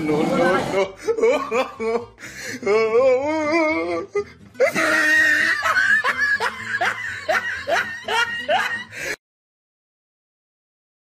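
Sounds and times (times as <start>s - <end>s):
wavering drawn-out voice: 0.0s - 1.0s
music: 0.0s - 9.2s
person laughing: 0.4s - 9.2s.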